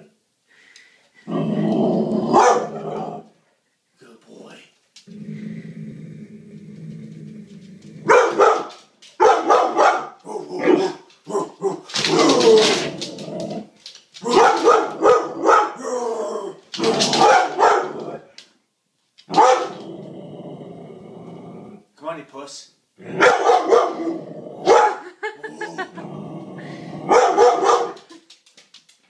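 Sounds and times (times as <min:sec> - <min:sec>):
dog growling: 0:01.2 - 0:03.4, 0:05.0 - 0:08.3, 0:10.2 - 0:18.3, 0:19.3 - 0:21.9, 0:23.0 - 0:24.8, 0:25.4 - 0:27.5
dog barking: 0:02.3 - 0:03.0, 0:08.0 - 0:11.5, 0:14.3 - 0:15.8, 0:17.2 - 0:18.0, 0:19.3 - 0:19.8, 0:23.1 - 0:25.1, 0:27.1 - 0:28.1.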